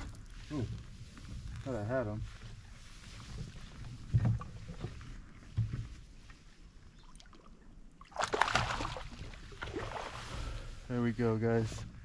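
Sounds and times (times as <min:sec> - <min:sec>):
fish splashing at the surface: 0:08.0 - 0:10.4.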